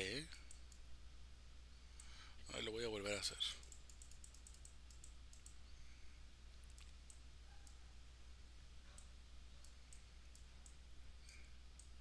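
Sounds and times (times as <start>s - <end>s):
low steady hum: 0.0s - 12.0s
computer mouse clicks: 3.6s - 5.6s, 6.6s - 7.8s, 9.0s - 12.0s.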